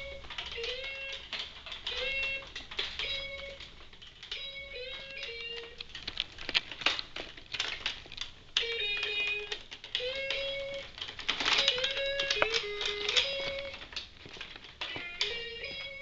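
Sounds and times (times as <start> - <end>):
toy guitar electronic tune: 0.0 - 5.9, 8.6 - 14.0, 14.8 - 16.0
rapid plastic clicks: 0.0 - 16.0.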